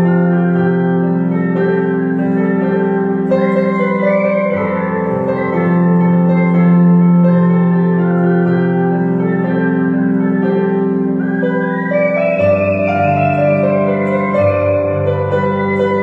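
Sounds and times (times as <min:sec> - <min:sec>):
digital piano chords: 0:00.0 - 0:16.0
person whistling a melody: 0:03.2 - 0:06.7, 0:09.5 - 0:16.0.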